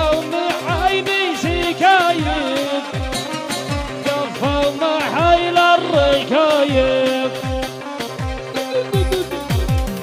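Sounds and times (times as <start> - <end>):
wavering melody line: 8.0 - 10.0.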